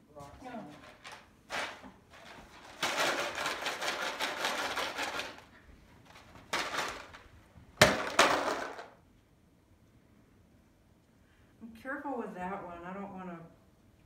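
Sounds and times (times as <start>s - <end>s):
rocks rattling in plastic bottle: 0.9s - 5.5s, 6.1s - 9.0s
bottle clattering on floor: 6.3s - 9.0s.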